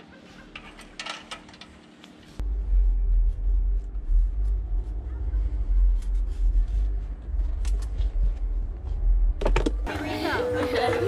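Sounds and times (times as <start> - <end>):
loud low fluctuating rumble: 2.4 - 9.9.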